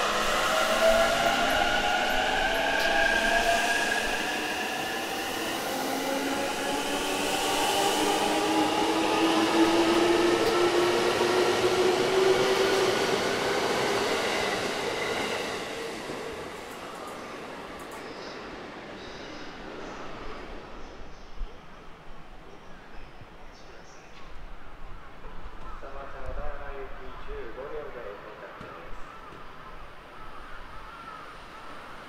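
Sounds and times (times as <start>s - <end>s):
train running noise: 0.0s - 20.9s.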